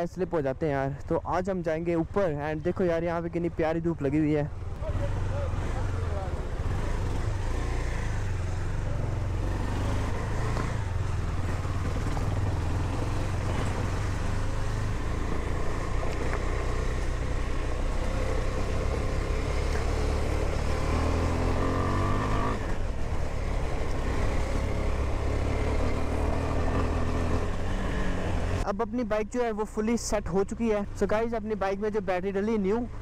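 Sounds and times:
motorcycle engine accelerating: 0:04.7 - 0:28.6.

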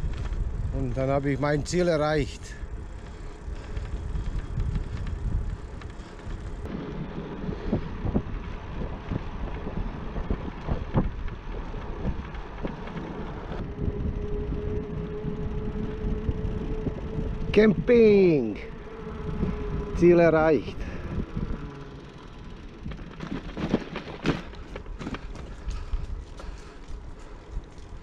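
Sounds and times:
wind rushing over microphone: 0:00.0 - 0:28.0
bicycle clicks and knocks: 0:02.6 - 0:07.0, 0:20.8 - 0:28.0.

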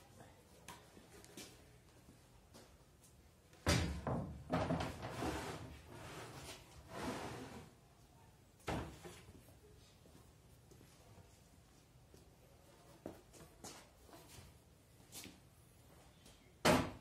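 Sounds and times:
board scraping across metal table: 0:05.0 - 0:07.7.

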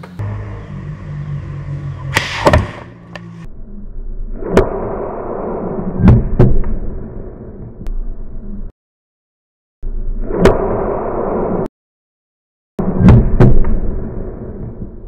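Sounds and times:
projectiles hitting wooden target: 0:02.1 - 0:02.9.

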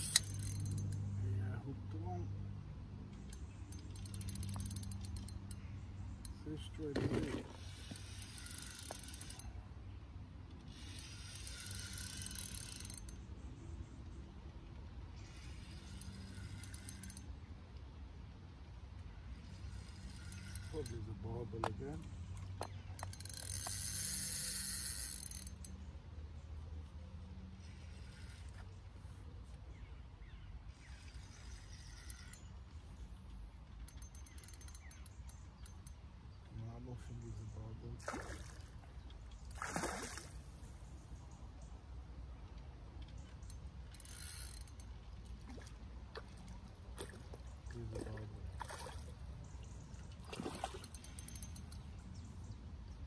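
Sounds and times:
fishing reel ticking: 0:00.0 - 0:01.2, 0:03.2 - 0:06.8, 0:07.5 - 0:09.6, 0:10.5 - 0:13.4, 0:15.1 - 0:17.5, 0:19.2 - 0:25.9, 0:27.6 - 0:28.9, 0:30.7 - 0:36.6, 0:43.0 - 0:45.2, 0:50.8 - 0:52.2.

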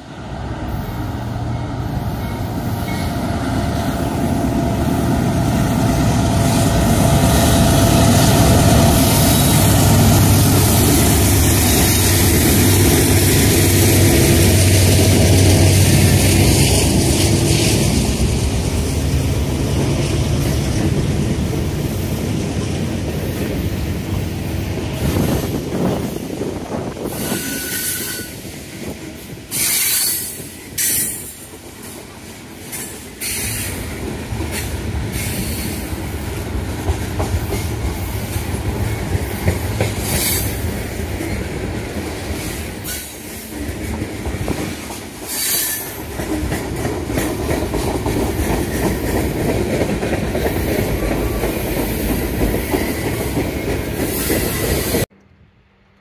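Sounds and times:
train wheels rumbling on rail: 0:00.0 - 0:55.2
clickety-clack over rail joints: 0:05.8 - 0:55.1
high wheel squeal: 0:27.0 - 0:28.5, 0:29.5 - 0:31.4.

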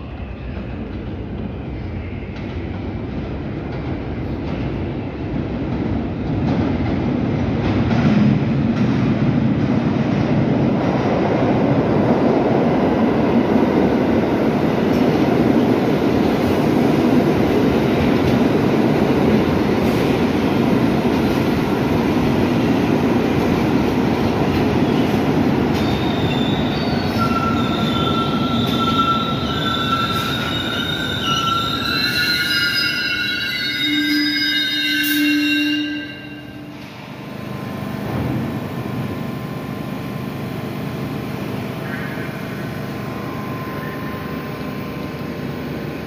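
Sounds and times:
subway train rumbling: 0:00.0 - 0:46.0
wheel squeal: 0:25.8 - 0:36.6.

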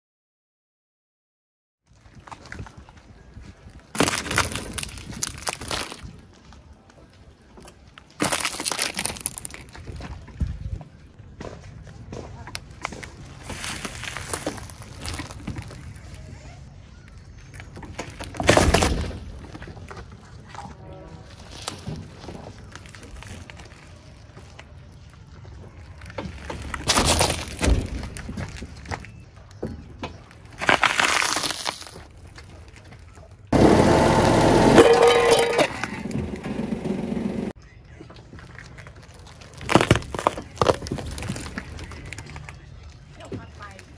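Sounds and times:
stalks crackling under car tyre: 0:01.9 - 0:11.2, 0:12.1 - 0:33.6, 0:34.3 - 0:43.9
tyre crushing plant stems: 0:03.9 - 0:06.1, 0:08.2 - 0:10.2, 0:12.8 - 0:16.0, 0:25.9 - 0:29.1, 0:30.1 - 0:32.9, 0:38.5 - 0:42.6.

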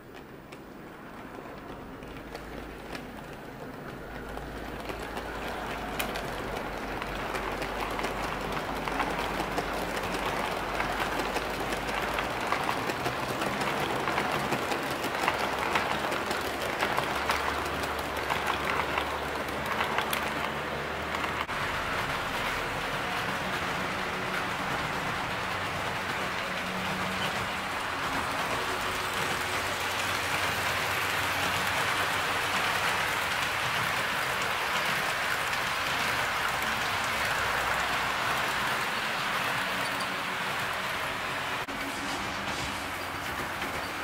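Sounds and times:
model train wheels clicking on rails: 0:00.0 - 0:44.0.

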